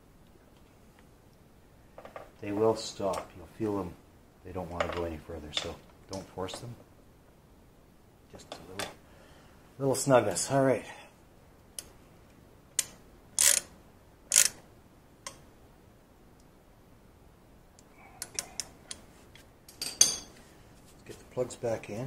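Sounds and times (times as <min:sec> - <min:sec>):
metallic ring: 0:19.7 - 0:20.4.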